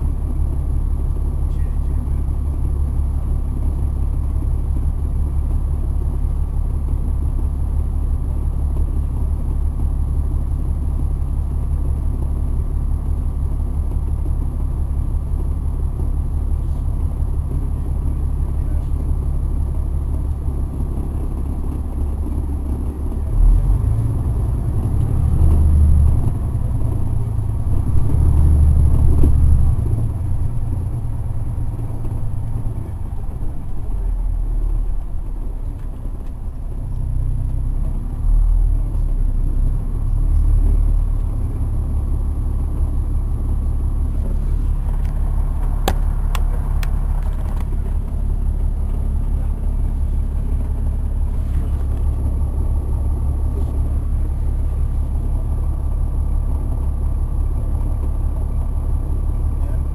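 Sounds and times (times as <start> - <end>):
bus diesel engine droning: 0.0 - 59.9.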